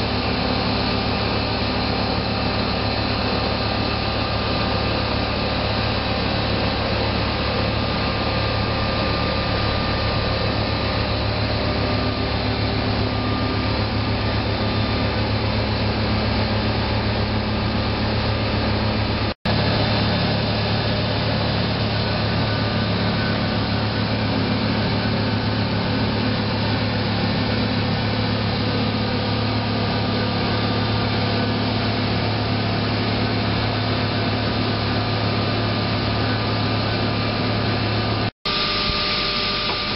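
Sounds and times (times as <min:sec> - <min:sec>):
machine saw whirring: 0:37.4 - 0:39.9.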